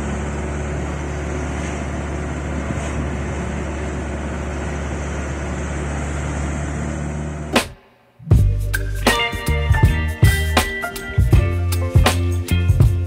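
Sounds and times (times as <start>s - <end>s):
vehicle engine and road hum: 0.0s - 7.7s.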